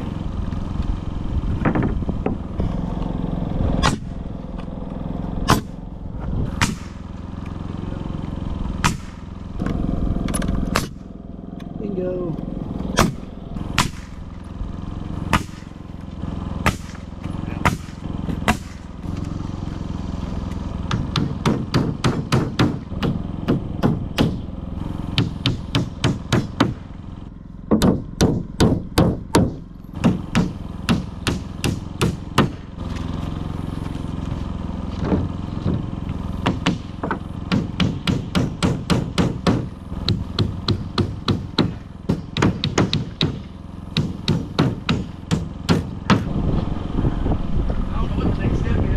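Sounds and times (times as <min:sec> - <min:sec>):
steady low hum: 0:00.0 - 0:48.9
hammer strikes on wood: 0:01.6 - 0:02.5, 0:05.5 - 0:05.8, 0:06.6 - 0:07.0, 0:08.8 - 0:09.8, 0:10.7 - 0:11.0, 0:13.0 - 0:13.2, 0:13.8 - 0:14.2, 0:15.3 - 0:15.7, 0:16.6 - 0:18.8, 0:20.8 - 0:24.4, 0:25.1 - 0:26.8, 0:27.7 - 0:32.6, 0:35.0 - 0:46.3.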